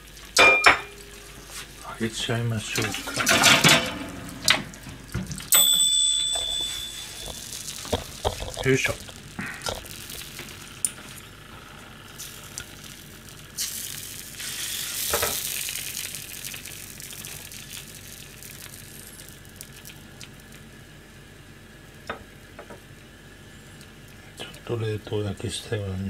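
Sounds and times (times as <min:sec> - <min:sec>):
sizzling from a hot pan: 0:07.0 - 0:22.6.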